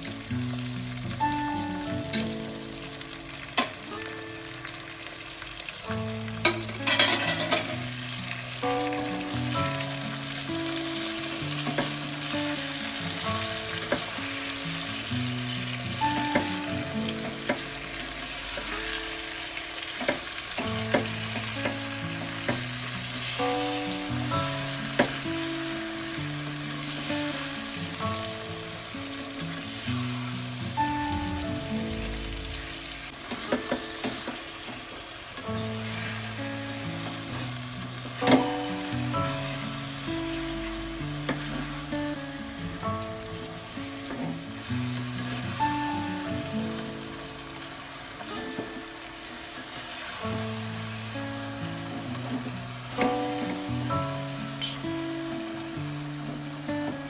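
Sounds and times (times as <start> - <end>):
background music with held notes: 0.0 - 57.0
eggplant sizzling in a wok: 0.0 - 57.0
utensils scraping and clacking on pan: 6.4 - 7.9, 54.6 - 54.9.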